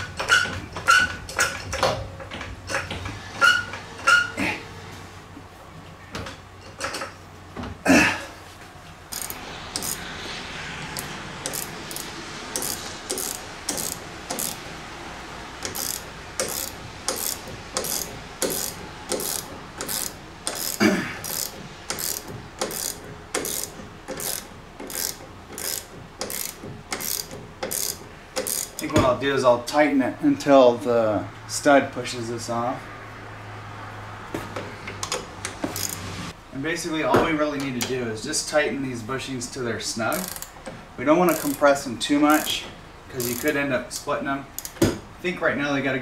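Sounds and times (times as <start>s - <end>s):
ratchet wrench clicking: 9.1s - 10.0s, 11.0s - 14.6s, 15.6s - 28.9s, 35.0s - 36.1s, 40.1s - 40.6s, 41.3s - 41.7s, 43.2s - 43.6s, 44.5s - 44.8s.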